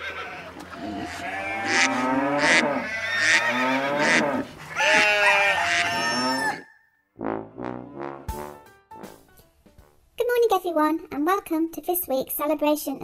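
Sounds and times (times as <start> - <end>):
sheep bleating: 0.0 - 6.6
cow mooing: 0.3 - 6.6.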